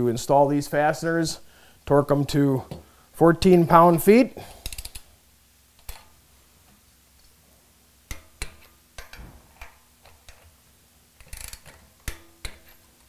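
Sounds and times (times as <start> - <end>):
torque wrench clicking: 4.6 - 5.1, 11.2 - 12.9.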